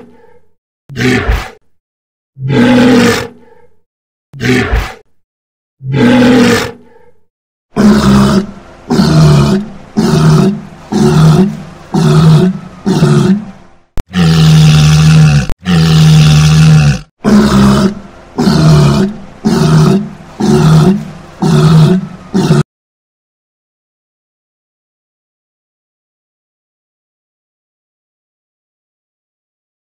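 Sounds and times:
walrus bellowing: 0:02.4 - 0:03.6, 0:05.8 - 0:07.1, 0:07.7 - 0:22.7.

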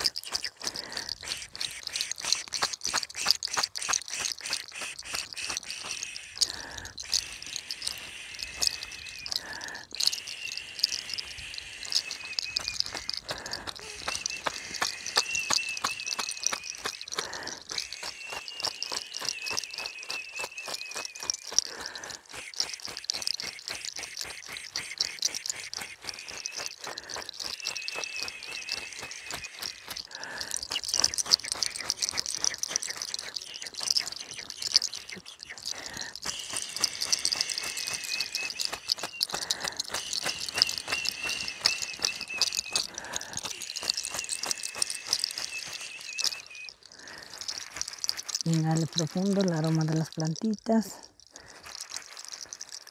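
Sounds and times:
high wavering whistling tone: 0:07.0 - 0:21.7, 0:27.4 - 0:30.0, 0:30.8 - 0:46.9
herb leaves rustling and crackling: 0:36.3 - 0:52.9.

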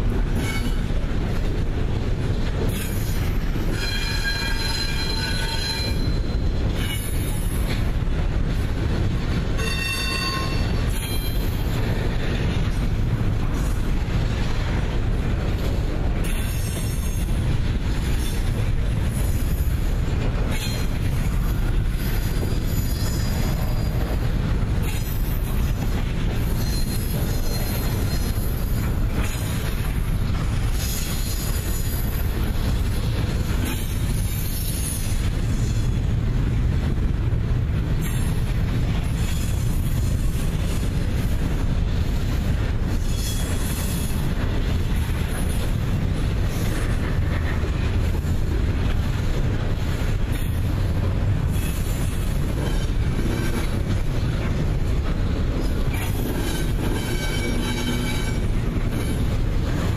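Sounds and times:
train wheels rumbling on rail: 0:00.0 - 0:59.9
wheel squeal: 0:26.4 - 0:28.5.

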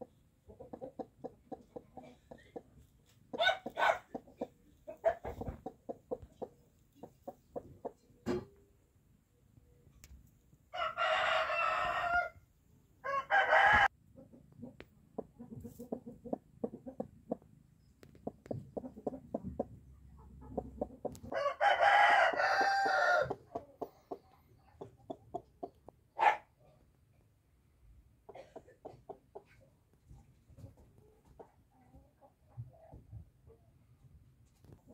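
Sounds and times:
chicken clucking: 0:00.0 - 0:08.3, 0:13.7 - 0:26.3, 0:28.3 - 0:32.9
rooster crowing: 0:10.7 - 0:12.4, 0:13.0 - 0:13.9, 0:21.3 - 0:23.4.

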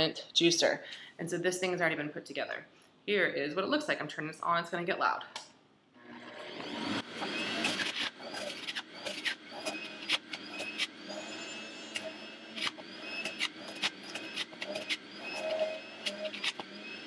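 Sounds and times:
fruit crunching in juicer: 0:06.0 - 0:17.0
juicer motor whine: 0:06.0 - 0:17.0.

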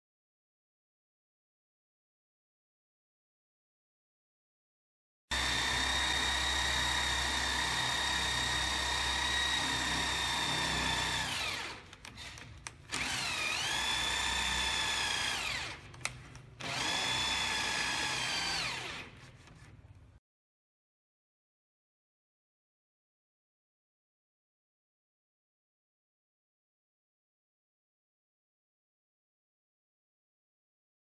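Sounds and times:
electric drill boring into wood: 0:05.3 - 0:15.9, 0:16.6 - 0:19.2.

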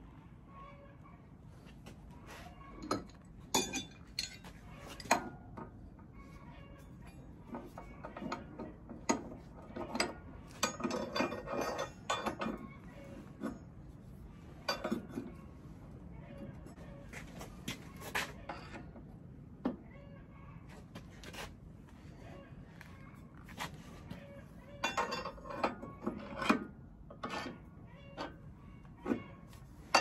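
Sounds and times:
wrenches clinking on metal nut: 0:02.8 - 0:06.1, 0:06.7 - 0:13.8, 0:14.6 - 0:15.4, 0:24.8 - 0:29.3.

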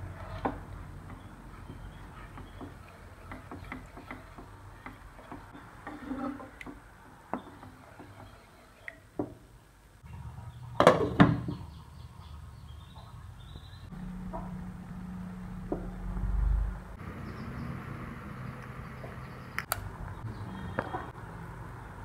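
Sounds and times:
wooden spoon stirring in pan: 0:00.0 - 0:09.5.

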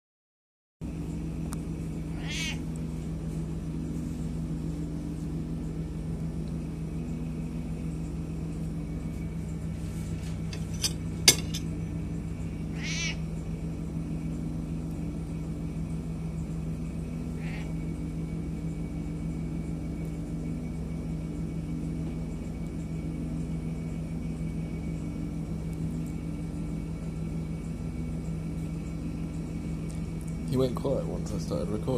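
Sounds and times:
steady low hum: 0:00.8 - 0:31.9
cat croaking meows: 0:02.1 - 0:02.7, 0:12.7 - 0:13.3, 0:17.4 - 0:17.8.

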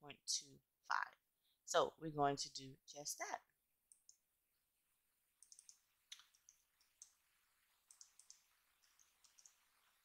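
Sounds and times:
keyboard and mouse clicks: 0:03.9 - 0:04.2, 0:05.4 - 0:07.2, 0:07.9 - 0:09.7.

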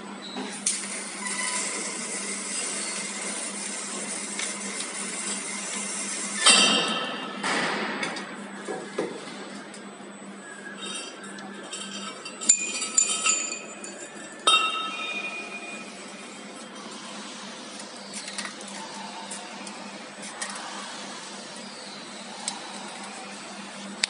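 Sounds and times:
steel tubes clanking and ringing: 0:10.8 - 0:15.9.

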